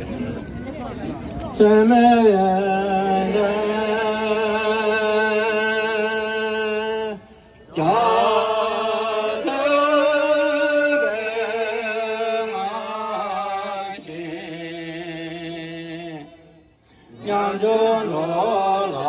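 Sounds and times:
prayer chant in long notes: 1.7s - 19.0s.

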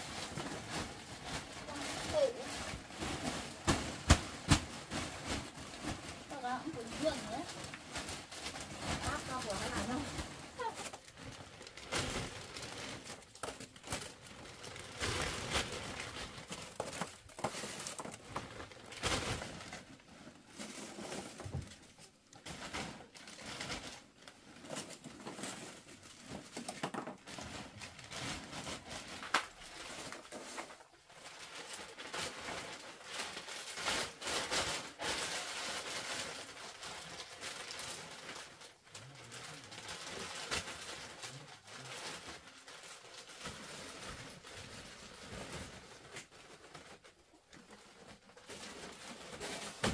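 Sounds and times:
plastic bag rustling: 0.0s - 49.9s.

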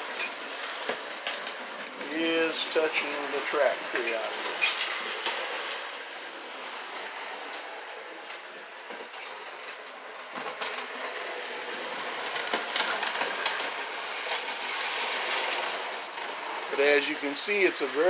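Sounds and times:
toy train motor and wheel rumble: 0.0s - 18.0s
person speaking: 2.0s - 4.5s, 16.7s - 18.0s.

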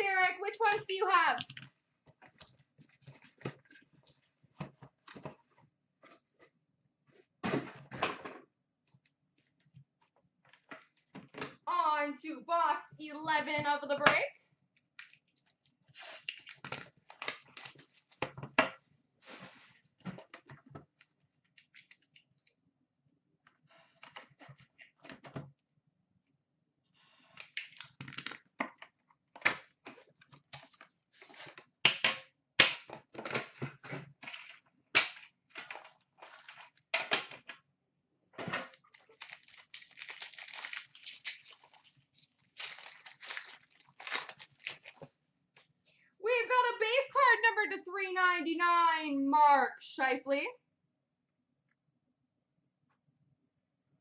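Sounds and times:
foil rustling and tearing: 38.9s - 45.0s.

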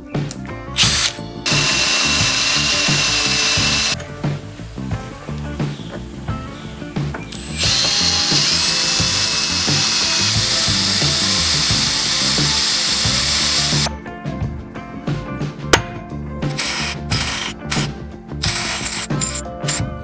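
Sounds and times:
background music with beat: 0.0s - 20.0s
power drill grinding metal: 0.8s - 4.0s, 7.3s - 13.9s, 16.5s - 19.9s.

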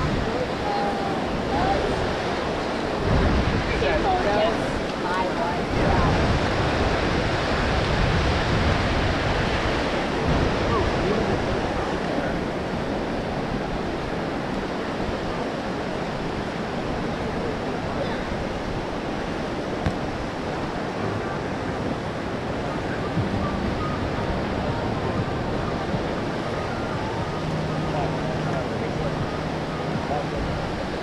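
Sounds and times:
ocean surf washing ashore: 0.0s - 31.0s.

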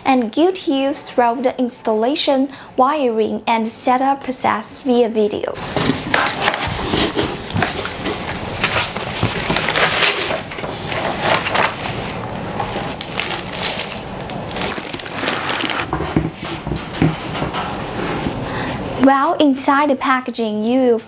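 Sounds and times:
cardboard and foam rustling: 5.6s - 18.4s.

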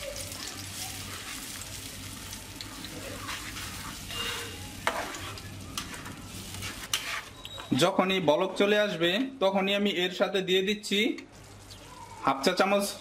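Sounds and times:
paste sizzling in hot oil: 0.0s - 7.4s
spatula stirring in pan: 0.2s - 7.8s.

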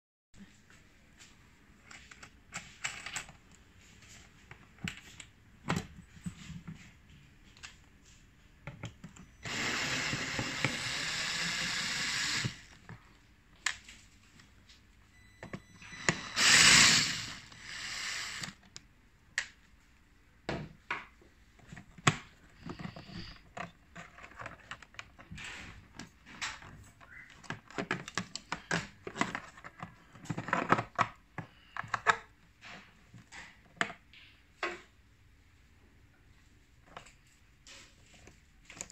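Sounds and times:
cordless drill running: 9.4s - 12.8s, 15.8s - 18.6s
plastic panel and screws clicking: 21.6s - 34.8s.

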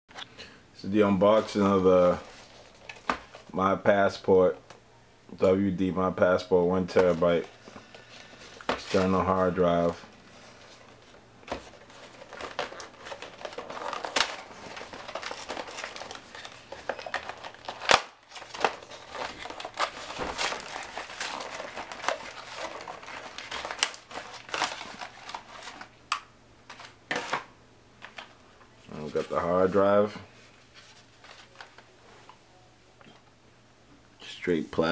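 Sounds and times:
packaging crinkling and rustling: 1.2s - 3.5s, 6.7s - 31.9s.

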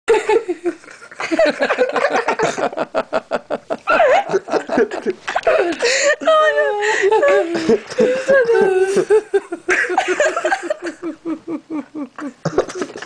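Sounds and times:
woman laughing hard: 3.8s - 13.0s.

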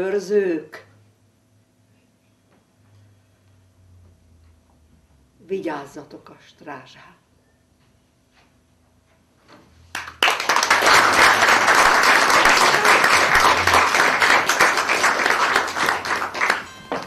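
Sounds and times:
audience applauding: 9.9s - 17.0s.

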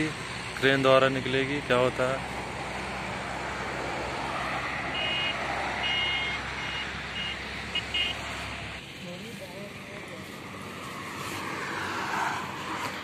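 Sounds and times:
roadside traffic noise: 0.0s - 13.0s
vehicle beeping: 4.7s - 8.7s.

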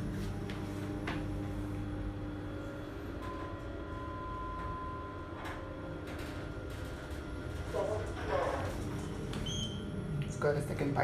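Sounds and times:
low lift hum: 0.0s - 11.0s.

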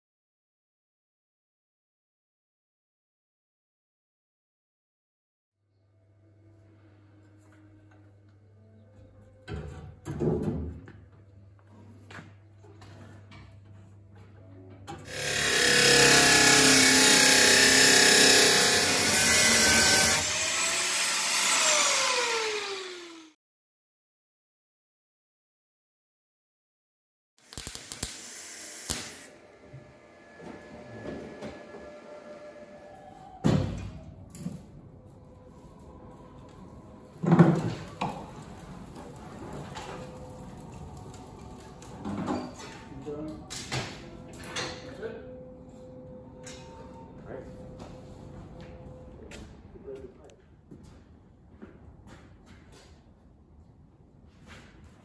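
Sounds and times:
angle grinder cutting steel: 15.1s - 23.4s, 27.4s - 29.5s.

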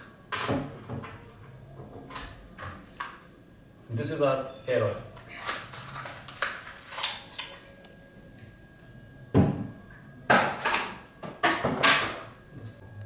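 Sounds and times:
cardboard packaging rustling: 5.2s - 7.6s.

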